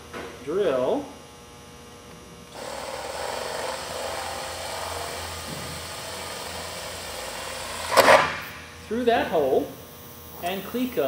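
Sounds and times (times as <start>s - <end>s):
power drill boring through metal: 2.5s - 8.0s.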